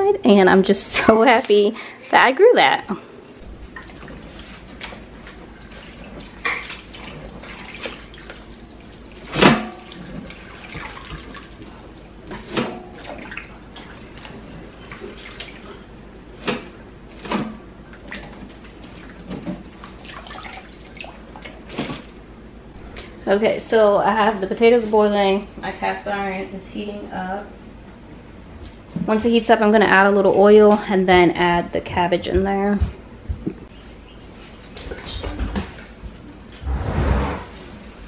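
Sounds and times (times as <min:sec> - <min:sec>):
water dripping and splashing: 0:03.6 - 0:12.4, 0:13.0 - 0:16.2, 0:17.9 - 0:22.1.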